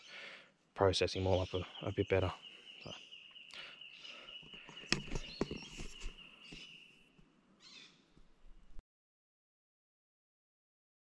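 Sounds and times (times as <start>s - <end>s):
rustling: 4.6s - 6.8s.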